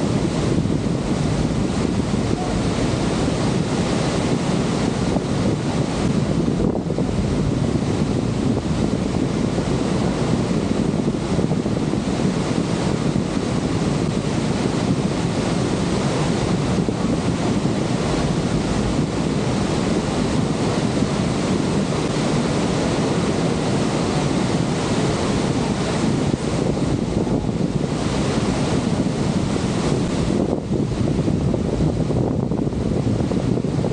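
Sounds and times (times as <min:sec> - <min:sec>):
waterfall roaring: 0:00.0 - 0:33.9
wind buffeting microphone: 0:00.0 - 0:33.9.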